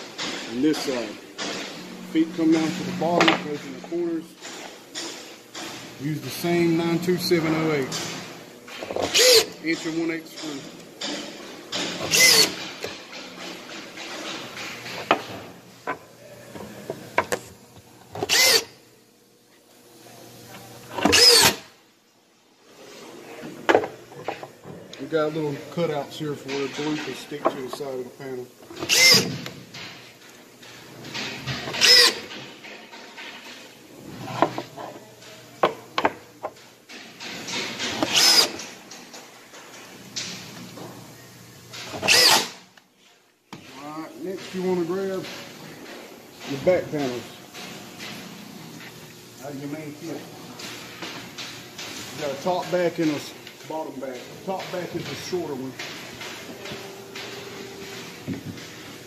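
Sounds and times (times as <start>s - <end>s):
power drill driving screws: 9.0s - 9.5s, 12.0s - 12.6s, 18.3s - 18.7s, 21.0s - 21.7s, 28.8s - 29.3s, 31.7s - 32.3s, 38.0s - 38.6s, 41.9s - 42.6s
cordless drill motor whining: 12.1s - 12.5s, 18.3s - 18.7s, 21.1s - 21.6s, 31.8s - 32.2s, 42.1s - 42.5s.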